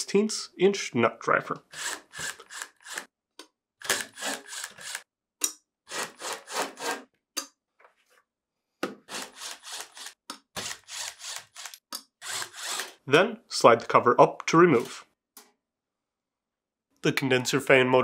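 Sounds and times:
screws rasping in sheet metal: 1.7s - 3.1s, 3.8s - 5.0s, 5.9s - 7.0s, 9.1s - 13.0s.

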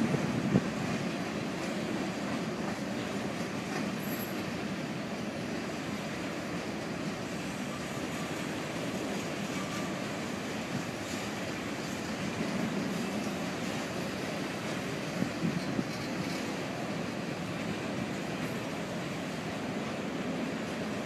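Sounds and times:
steel wheels rumbling on rails: 0.0s - 21.0s.

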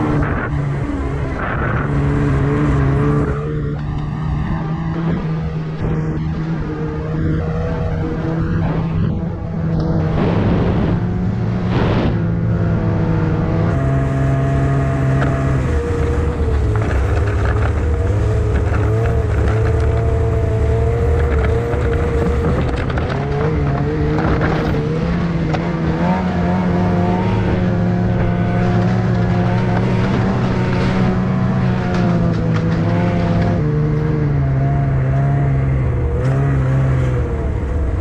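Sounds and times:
snowmobile engine running: 0.0s - 38.0s.

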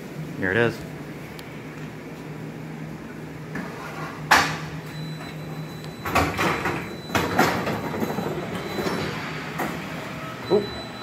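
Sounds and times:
elevator machine hum: 0.0s - 11.0s
elevator clunk: 4.3s - 11.0s
elevator doors sliding open rattling: 5.0s - 11.0s.

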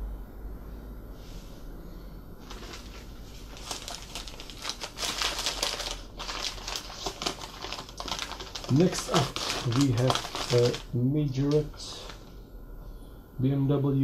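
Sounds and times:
newspaper crinkling and rustling: 2.4s - 12.3s.

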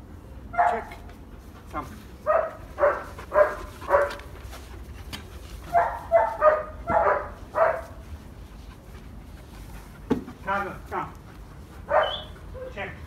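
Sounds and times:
dog barking: 0.6s - 0.9s, 2.2s - 4.2s, 5.7s - 7.9s, 11.9s - 12.3s.

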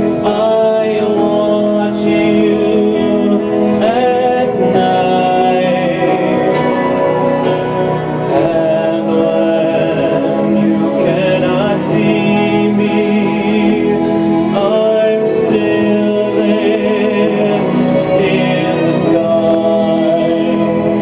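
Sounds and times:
instrumental accompaniment: 0.0s - 21.0s
man singing a slow ballad: 0.0s - 21.0s.

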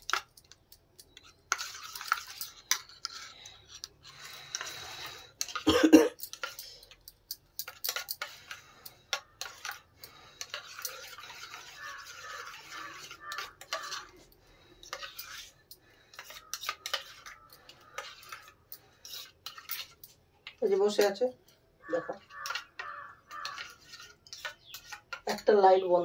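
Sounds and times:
metal spoon clinking in steel cup: 5.4s - 14.2s.

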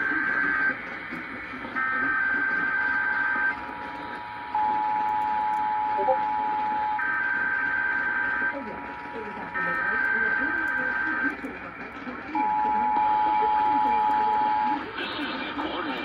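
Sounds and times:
radio static hiss: 0.0s - 4.6s, 8.1s - 16.0s
steady attention tone: 0.0s - 15.6s.

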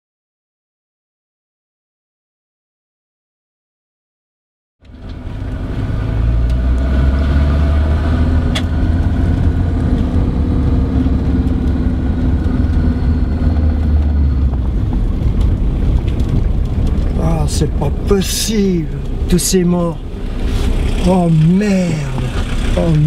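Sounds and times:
car engine and road drone: 4.8s - 23.0s.

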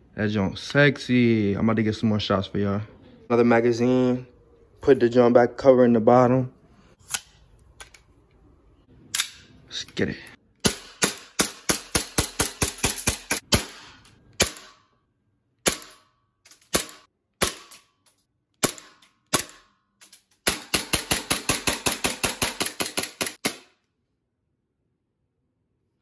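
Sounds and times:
airsoft pistol shots: 10.6s - 14.9s, 15.6s - 16.1s, 16.7s - 17.9s, 18.6s - 19.7s.

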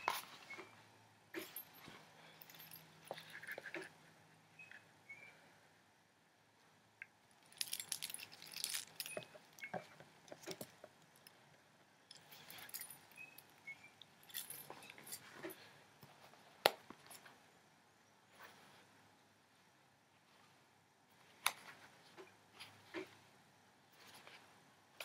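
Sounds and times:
metal chain jangling: 1.4s - 3.6s, 7.4s - 9.8s, 12.1s - 13.6s, 14.2s - 15.6s.

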